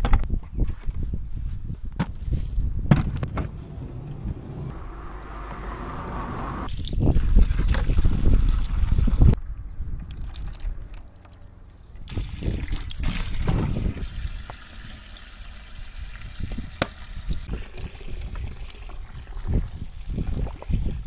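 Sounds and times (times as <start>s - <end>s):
water running into plastic buckets: 6.7s - 9.4s, 12.1s - 21.0s.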